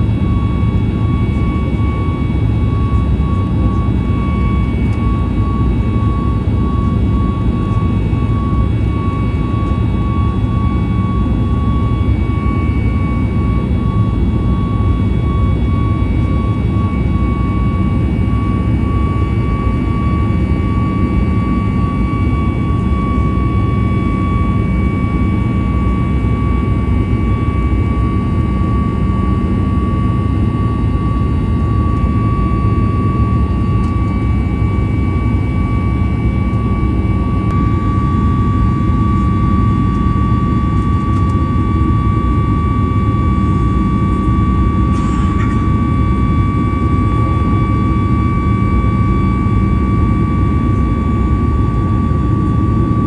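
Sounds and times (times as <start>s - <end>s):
high engine whine: 0.0s - 53.0s
jet engine rumble and air rush: 0.0s - 53.0s.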